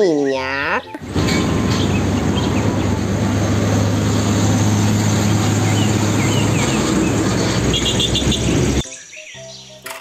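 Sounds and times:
diesel truck engine passing: 0:01.0 - 0:08.8.

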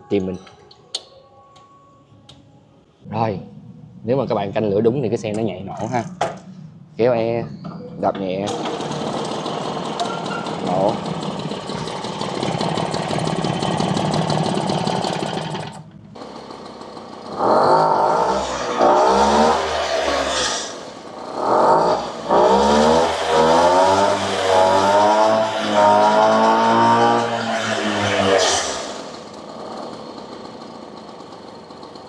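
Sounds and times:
moped engine revving: 0:08.5 - 0:32.0.

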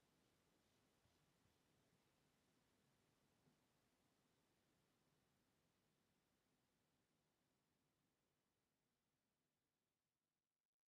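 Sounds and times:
faint hiss: 0:00.0 - 0:06.0.

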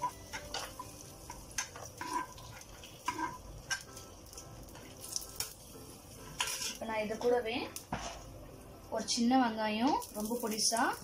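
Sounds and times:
metal spoon scraping a frying pan: 0:00.0 - 0:04.0, 0:06.2 - 0:07.3
faint sizzle of hot oil: 0:00.0 - 0:11.0.

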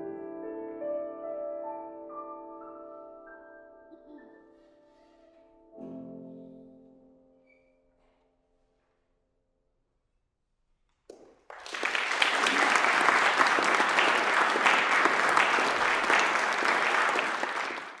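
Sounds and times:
audience applause: 0:11.1 - 0:18.0.

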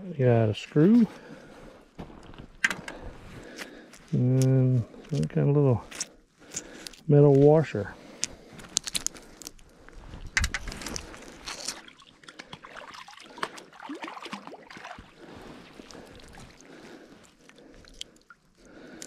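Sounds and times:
metal bits clicking and scraping: 0:08.2 - 0:09.6.

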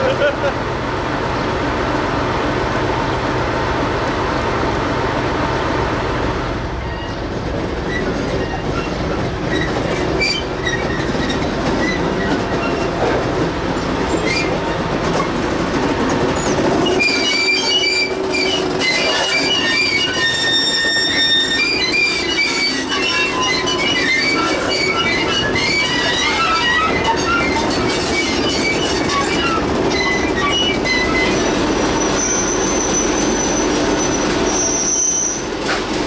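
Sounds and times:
diesel locomotive engine humming: 0:00.0 - 0:36.0
train wheels squealing: 0:06.8 - 0:13.0, 0:13.8 - 0:15.3, 0:16.4 - 0:35.9.

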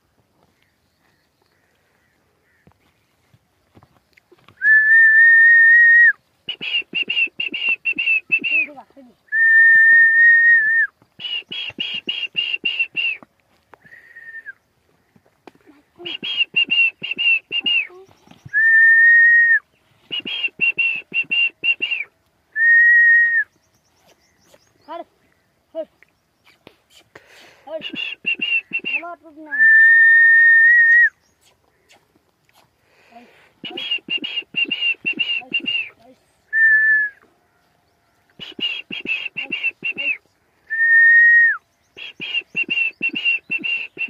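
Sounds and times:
person whistling: 0:04.6 - 0:08.7, 0:09.3 - 0:13.2, 0:13.9 - 0:14.6, 0:16.0 - 0:17.9, 0:18.5 - 0:23.5, 0:27.7 - 0:31.2, 0:33.6 - 0:37.2, 0:38.4 - 0:44.0.

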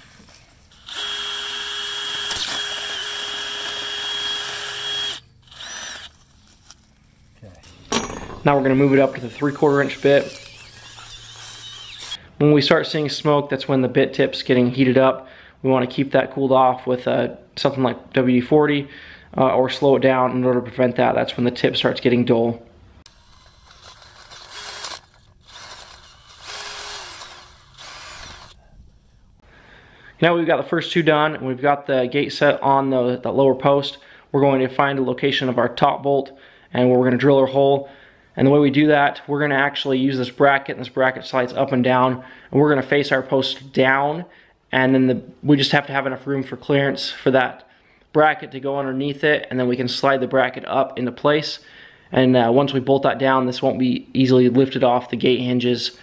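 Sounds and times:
cordless drill motor whine: 0:00.7 - 0:06.3, 0:09.2 - 0:12.2, 0:23.1 - 0:28.6.

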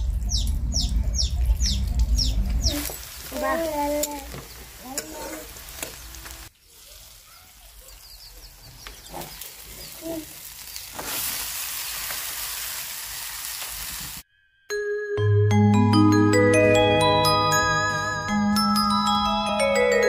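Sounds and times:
onions sizzling in oil: 0:02.7 - 0:14.2
metal spatula scraping: 0:03.4 - 0:06.2
loud hiss of frying chicken: 0:09.5 - 0:14.2
marimba-like jingle: 0:14.7 - 0:20.0.

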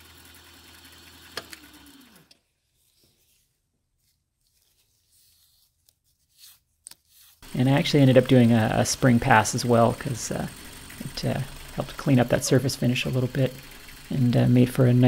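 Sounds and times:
faint brush scrapes: 0:02.6 - 0:07.4
milling machine motor running: 0:07.4 - 0:15.0
spindle whine coasting down: 0:07.4 - 0:15.0.

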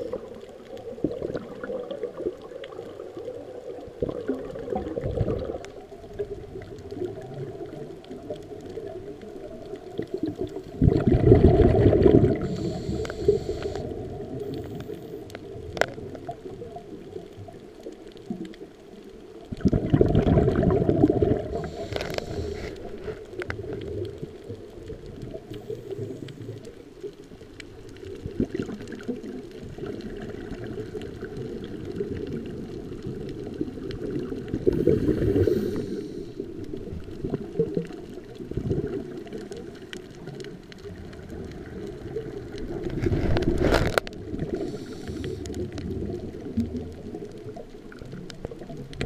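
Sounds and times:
bubbling exhaled air underwater: 0:00.0 - 0:49.0
faint clicks: 0:12.0 - 0:19.8, 0:21.2 - 0:49.0
regulator hiss: 0:12.4 - 0:15.2, 0:21.6 - 0:23.0, 0:34.7 - 0:36.6, 0:44.5 - 0:45.5.

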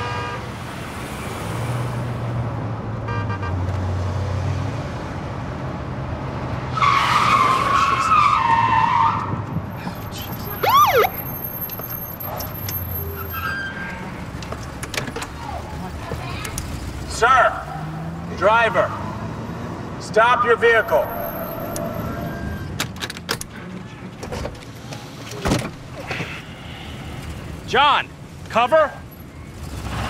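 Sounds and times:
police siren: 0:10.4 - 0:12.5, 0:20.2 - 0:22.7.

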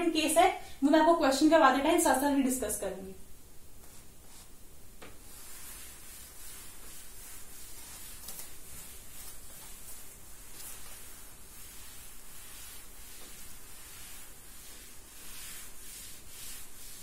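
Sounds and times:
duster rubbing on chalkboard: 0:05.2 - 0:17.0.

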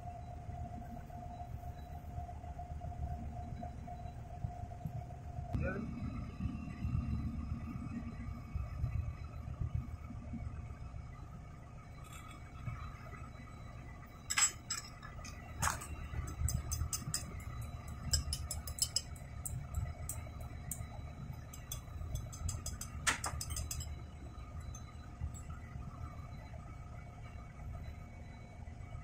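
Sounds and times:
steady low rumble: 0:00.0 - 0:29.0
spanner clinking on metal parts: 0:14.2 - 0:20.8, 0:21.4 - 0:24.1.

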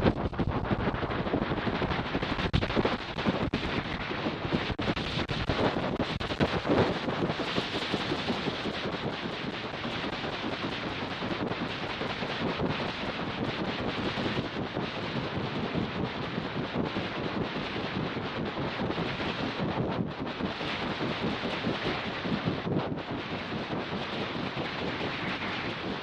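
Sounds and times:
rattle of wingbeat buffeting: 0:00.0 - 0:26.0
wind rushing over microphone: 0:00.0 - 0:26.0.

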